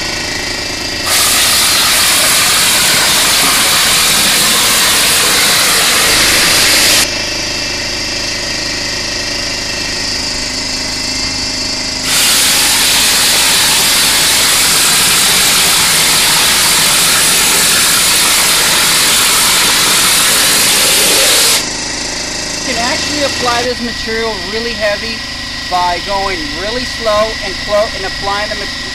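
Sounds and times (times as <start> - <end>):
air compressor running: 0.0 - 28.9
spray gun air hiss: 1.0 - 7.1, 12.0 - 21.6.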